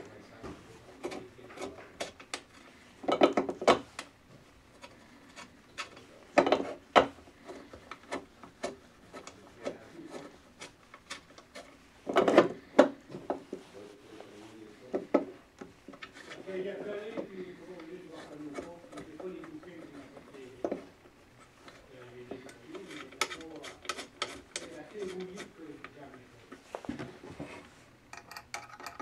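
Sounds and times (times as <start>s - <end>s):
metal knocking and rubbing: 4.7s - 13.7s, 22.4s - 25.6s, 26.9s - 29.0s
metal clicks and knocks: 28.1s - 29.0s.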